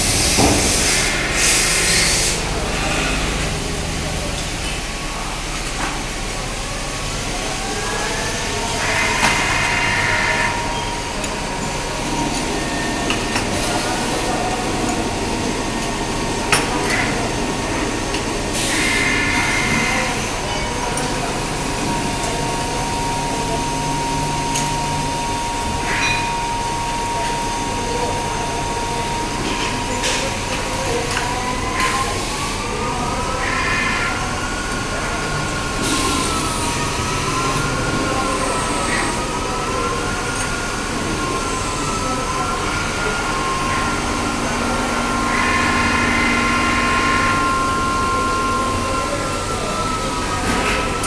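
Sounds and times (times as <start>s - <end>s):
lathe spindle whine: 0.0s - 51.0s
bursts of machine noise: 32.5s - 51.0s.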